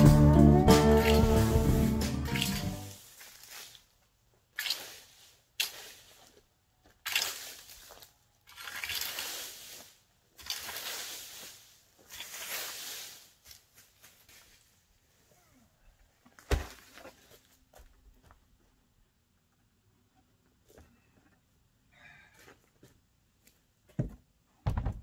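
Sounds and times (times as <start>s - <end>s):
rake scraping dry leaves: 0.7s - 3.9s, 4.6s - 6.4s, 7.1s - 14.7s.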